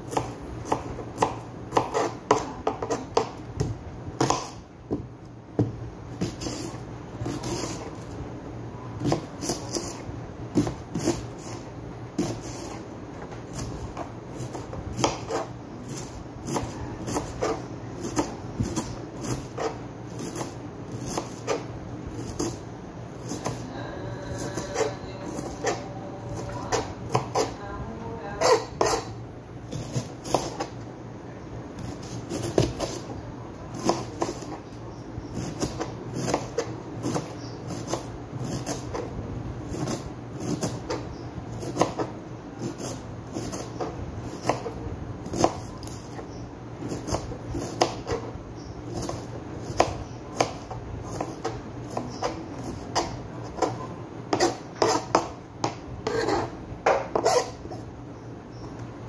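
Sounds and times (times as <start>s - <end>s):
knife chopping on cutting board: 0.1s - 5.0s, 5.6s - 7.9s, 9.0s - 12.8s, 13.5s - 22.6s, 26.4s - 27.6s, 29.7s - 30.8s, 31.8s - 33.1s, 33.7s - 34.6s, 35.4s - 39.1s, 39.7s - 41.0s, 41.6s - 46.2s, 46.8s - 48.3s, 48.9s - 57.6s.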